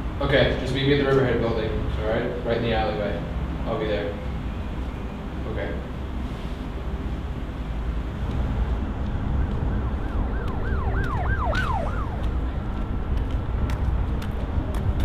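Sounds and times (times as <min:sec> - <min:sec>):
low rumble of traffic: 0:00.0 - 0:15.0
emergency vehicle siren: 0:04.1 - 0:13.1.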